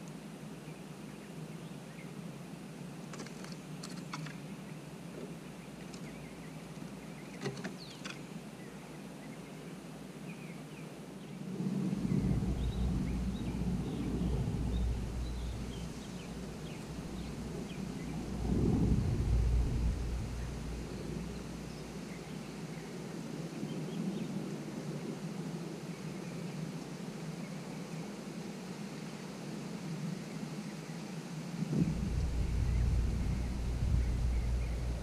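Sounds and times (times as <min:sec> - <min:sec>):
wind buffeting microphone: 0:11.3 - 0:26.7, 0:31.6 - 0:35.0.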